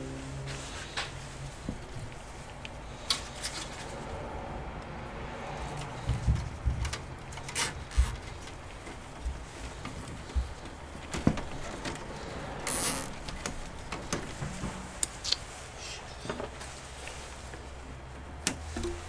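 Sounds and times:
cable rustling: 0:05.6 - 0:15.7.

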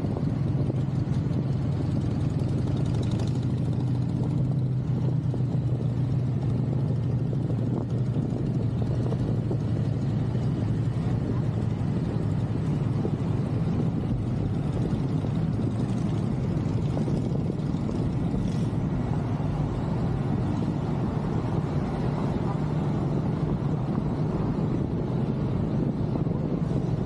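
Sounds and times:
motorcycle engine rumble: 0:00.0 - 0:27.0
wind on microphone: 0:00.0 - 0:27.0.

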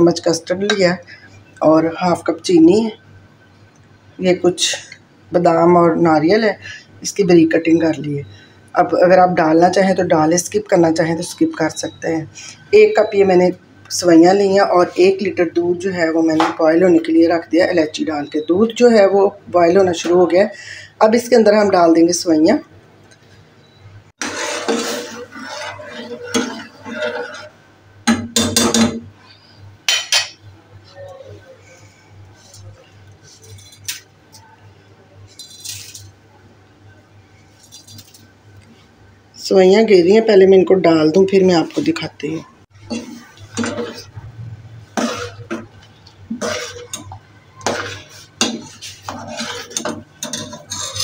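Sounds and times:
spoon scraping a pot: 0:24.2 - 0:29.0, 0:32.3 - 0:34.1, 0:35.3 - 0:36.2, 0:41.1 - 0:51.0
spoon clinking against pot: 0:46.4 - 0:51.0.

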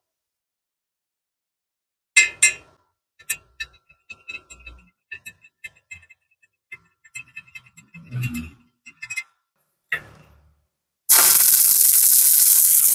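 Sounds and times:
metal electrode clinking on steel: 0:11.1 - 0:12.9.

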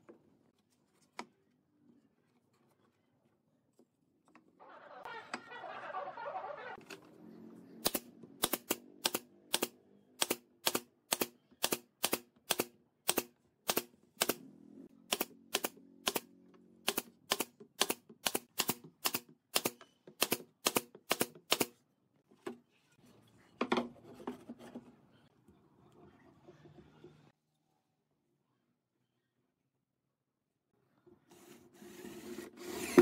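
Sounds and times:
nail gun shots: 0:07.8 - 0:14.4.

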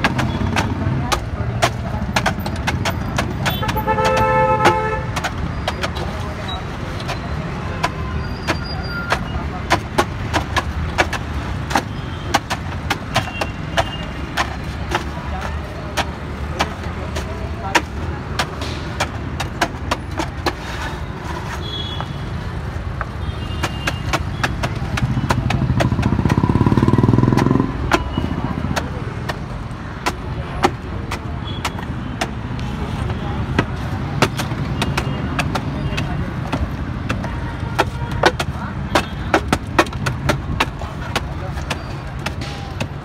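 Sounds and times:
wooden paddles clacking on steel pan: 0:00.0 - 0:06.3, 0:07.0 - 0:21.0
wooden paddles knocking metal pans: 0:00.0 - 0:06.3
road traffic rumble: 0:00.0 - 0:43.0.

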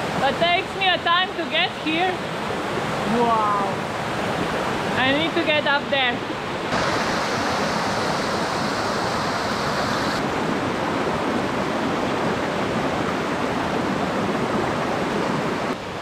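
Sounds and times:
waterfall rushing over rocks: 0:06.7 - 0:10.6.

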